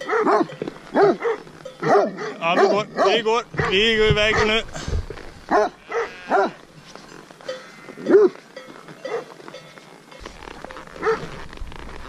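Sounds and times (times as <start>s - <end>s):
dog barking: 0.0s - 4.6s, 5.5s - 6.6s, 8.1s - 8.4s, 9.0s - 9.3s, 11.0s - 11.3s.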